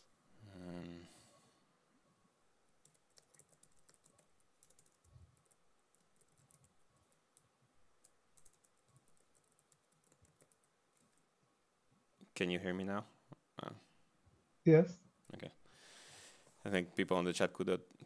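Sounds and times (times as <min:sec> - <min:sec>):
faint keyboard typing clicks: 0:02.8 - 0:11.3.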